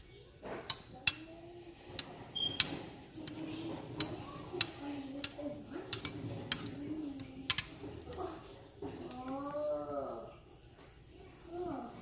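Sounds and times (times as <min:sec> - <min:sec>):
spoon clinking against bowl: 0:01.9 - 0:06.8.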